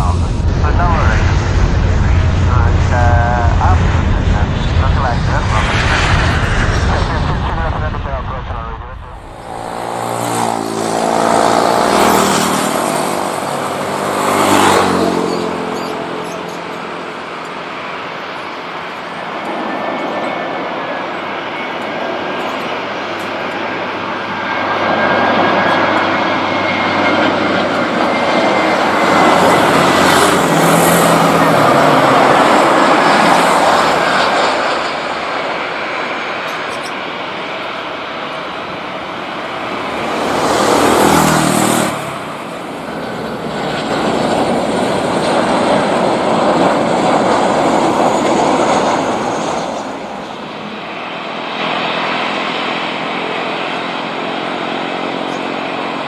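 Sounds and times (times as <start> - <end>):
jet engines roaring with high whine: 0.0 - 56.0.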